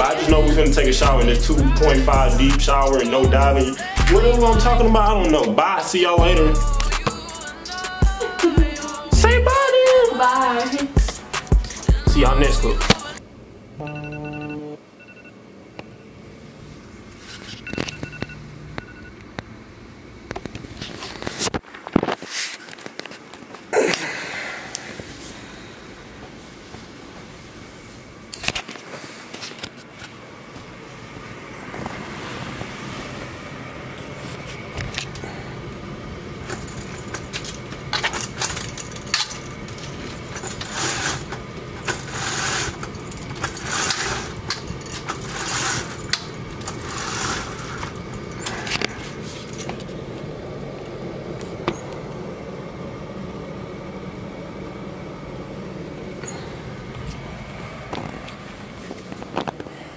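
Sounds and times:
steady room hum: 0:00.0 - 0:59.9
rustling and scraping: 0:16.7 - 0:17.9, 0:20.4 - 0:23.7, 0:26.3 - 0:35.2, 0:36.4 - 0:50.0
short hissing rustles: 0:39.9 - 0:49.6.

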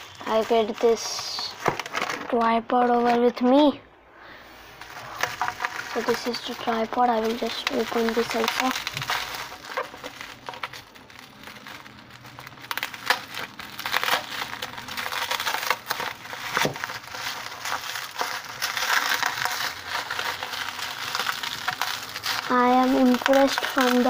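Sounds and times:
bubble wrap crinkling: 0:00.0 - 0:03.7, 0:04.3 - 0:24.0.

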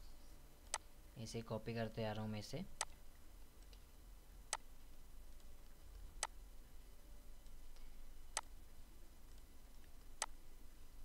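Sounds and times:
faint low hum: 0:00.0 - 0:11.0
computer mouse clicks: 0:00.6 - 0:00.9, 0:05.3 - 0:06.4, 0:07.4 - 0:08.5, 0:09.2 - 0:10.4.

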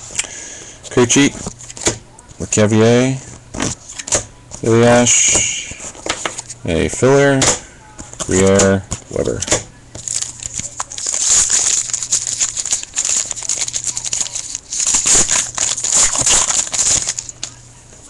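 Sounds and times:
wrapper crinkling and tearing: 0:10.0 - 0:17.6.

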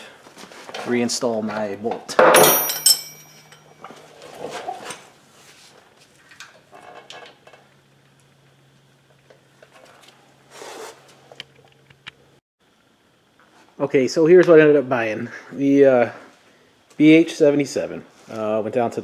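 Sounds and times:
metal clanking on metal: 0:02.2 - 0:03.7
metal clinks and rattles: 0:02.3 - 0:03.9.

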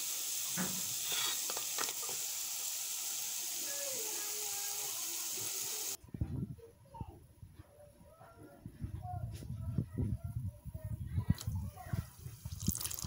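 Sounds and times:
dough sizzling in hot oil: 0:00.0 - 0:06.0, 0:12.4 - 0:13.0.

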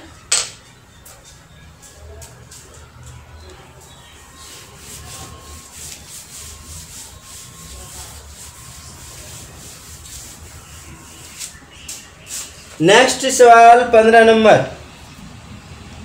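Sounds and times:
cloth wiping a chalkboard: 0:03.8 - 0:13.2.

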